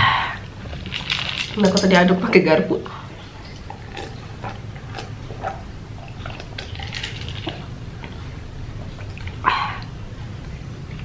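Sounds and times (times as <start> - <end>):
ice cubes clinking in plastic jug: 0.8 - 2.1, 6.6 - 7.6.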